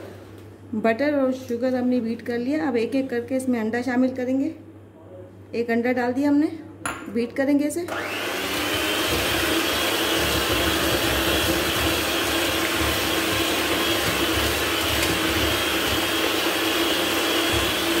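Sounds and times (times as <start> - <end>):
electric hand mixer whining: 7.9 - 18.0.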